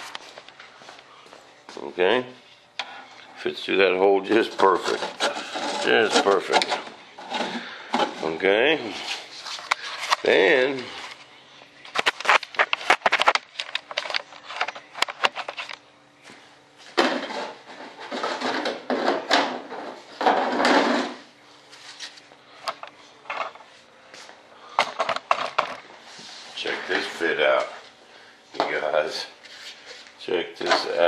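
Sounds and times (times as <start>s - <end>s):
plastic duct scraping: 4.3s - 8.4s
plastic parts clattering: 11.9s - 15.8s, 24.8s - 25.8s.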